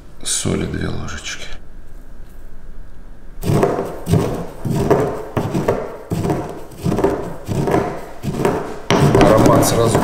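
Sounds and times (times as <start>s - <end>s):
pestle crushing spices in mortar: 3.4s - 10.0s.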